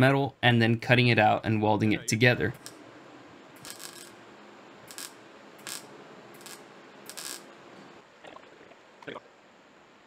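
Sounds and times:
welder bursts: 3.6 - 4.2, 4.8 - 7.6.

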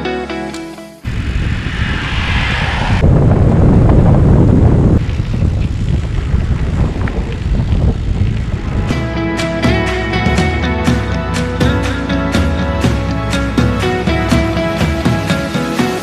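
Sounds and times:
wind rumbling on microphone: 1.0 - 12.8.

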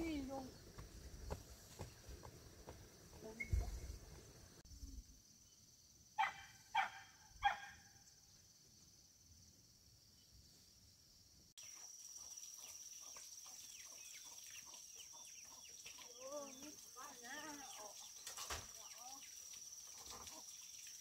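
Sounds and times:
high insect drone: 0.0 - 21.0
dog barking: 6.2 - 7.8.

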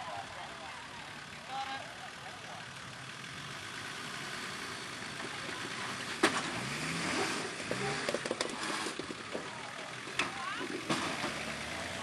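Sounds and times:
car engine revving: 2.6 - 12.0.

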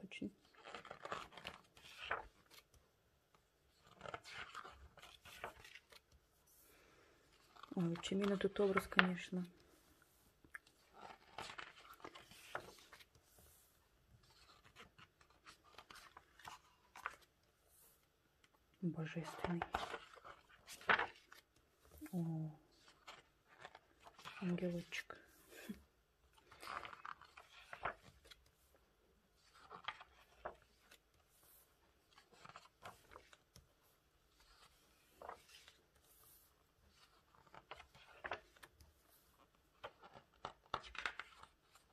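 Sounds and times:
pages rustling and clicking: 0.4 - 2.8, 3.6 - 6.2, 7.3 - 9.7, 10.4 - 41.9.

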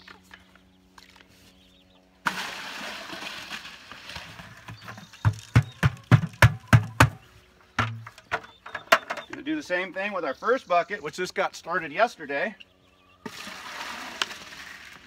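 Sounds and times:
grain and water pouring splash: 2.3 - 4.4, 13.3 - 15.0
plastic buckets knocking together: 4.1 - 7.2, 7.8 - 9.4.

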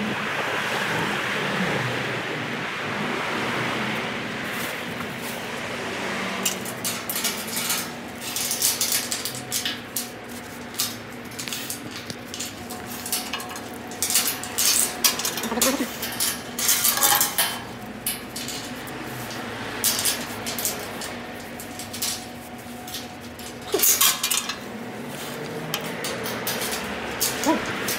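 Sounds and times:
steady hum: 4.0 - 27.9
metal clattering and clinking: 6.3 - 27.9.

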